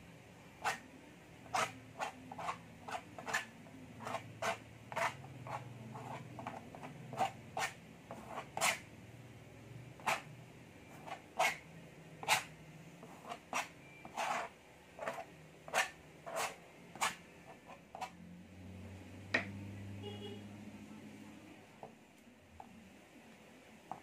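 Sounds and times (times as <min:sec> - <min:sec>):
palette knife scraping paint on canvas: 0:00.6 - 0:08.9, 0:10.0 - 0:10.3, 0:10.9 - 0:11.6, 0:12.2 - 0:18.2.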